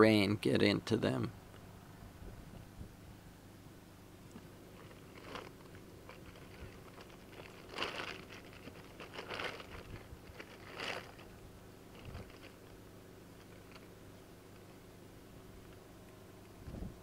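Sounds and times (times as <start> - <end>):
plastic tarp crinkling: 4.7 - 12.7.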